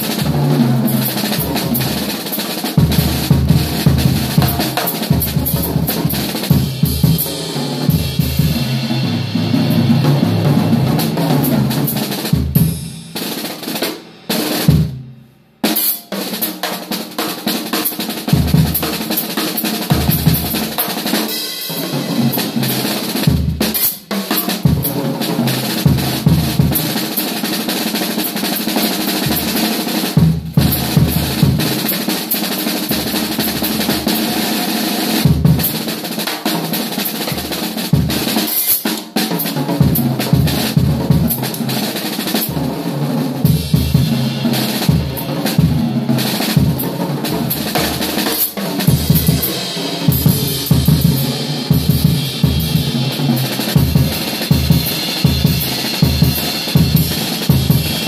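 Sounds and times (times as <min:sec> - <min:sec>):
snare and tom rolls: 0:15.7 - 0:58.0.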